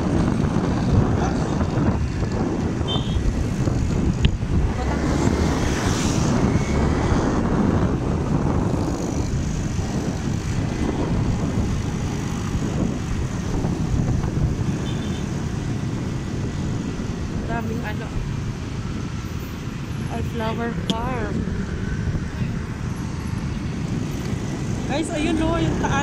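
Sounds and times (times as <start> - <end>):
motorcycle engine: 0.0 - 19.0
wind on microphone: 0.0 - 26.0.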